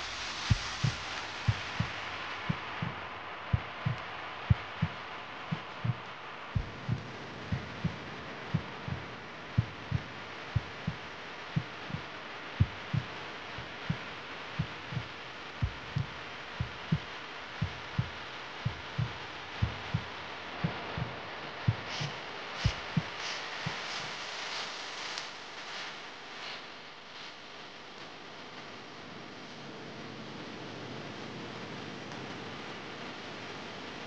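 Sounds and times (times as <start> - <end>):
steady hiss: 0.0 - 34.0
heartbeat pulse: 0.4 - 24.2.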